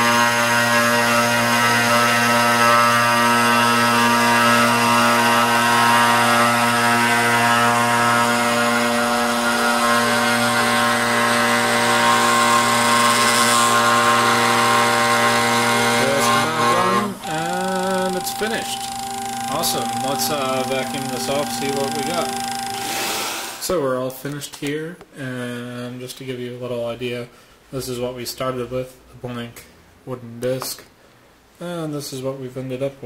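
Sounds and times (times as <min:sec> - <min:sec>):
router spindle motor whining: 0:00.0 - 0:23.6
motor tones gliding in pitch: 0:12.2 - 0:23.1.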